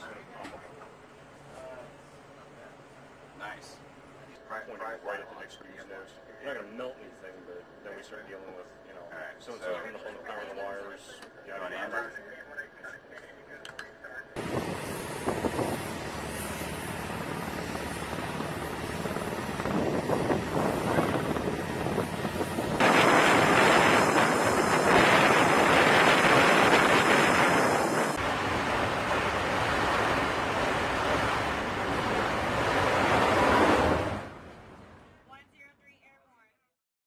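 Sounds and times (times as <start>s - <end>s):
jet engines roaring: 14.4s - 35.2s.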